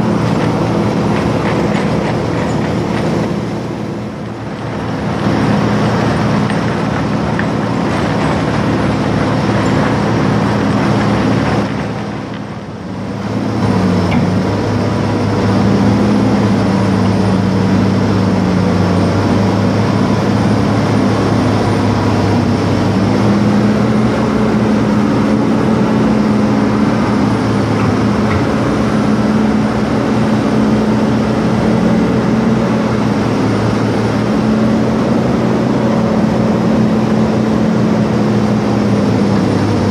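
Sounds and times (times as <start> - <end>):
diesel engine running under load: 0.0 - 39.9.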